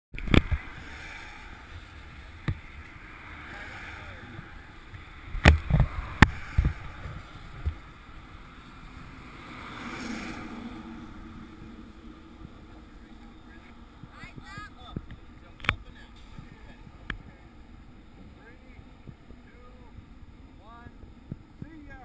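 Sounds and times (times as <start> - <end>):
wind noise on microphone: 0.1 - 3.4, 4.2 - 8.5, 17.8 - 21.9.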